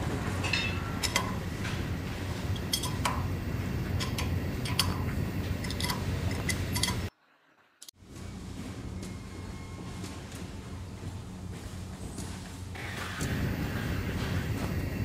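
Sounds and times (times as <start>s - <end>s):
machine humming: 0.0s - 7.1s, 7.9s - 15.0s
wrench clinking on metal: 0.4s - 1.4s, 2.6s - 3.3s, 5.6s - 7.1s.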